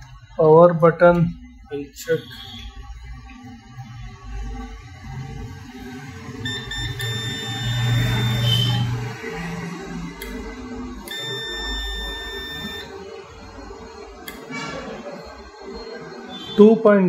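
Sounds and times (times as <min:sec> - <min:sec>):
multimeter beeping: 0:06.4 - 0:09.6, 0:11.0 - 0:16.8.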